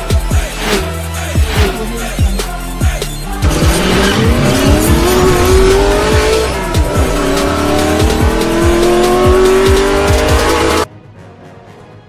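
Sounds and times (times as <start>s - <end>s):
electronic music with kick drum: 0.0s - 10.9s
car engine revving: 3.3s - 10.9s.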